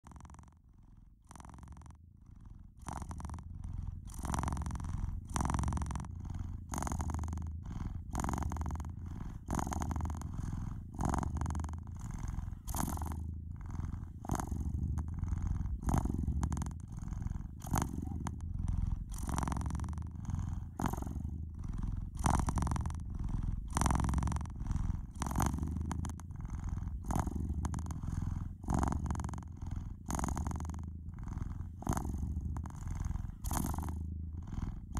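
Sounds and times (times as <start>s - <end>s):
cat purring: 0.0s - 34.9s.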